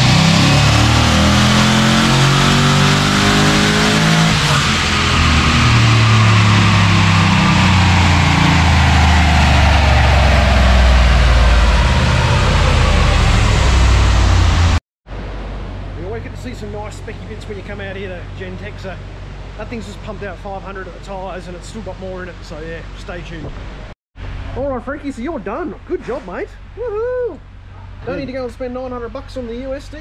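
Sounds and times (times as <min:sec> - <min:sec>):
car engine revving hard: 0:00.0 - 0:14.8.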